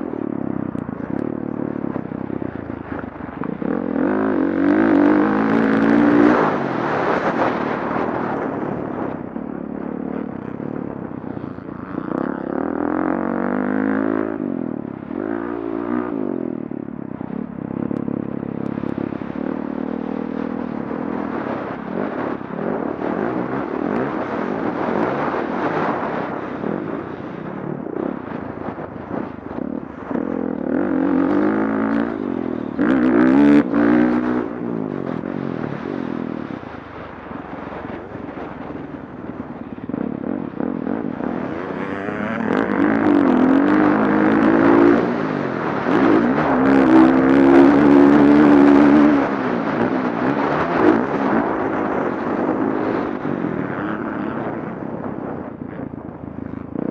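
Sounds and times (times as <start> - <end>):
dirt bike engine revving: 1.7 - 9.0, 10.1 - 16.3, 28.1 - 36.6, 40.4 - 54.6.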